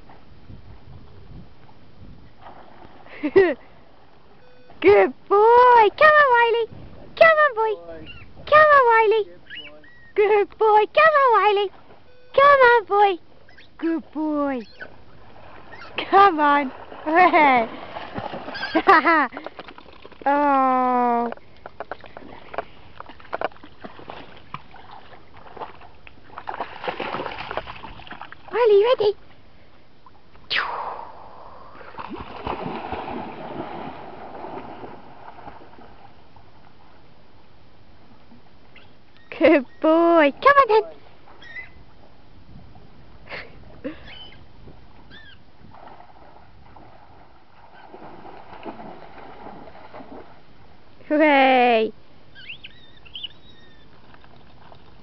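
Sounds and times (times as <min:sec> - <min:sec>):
water sloshing and splashing: 0:14.8 - 0:20.3, 0:21.3 - 0:29.4, 0:31.8 - 0:37.0, 0:45.6 - 0:50.8, 0:53.9 - 0:55.0.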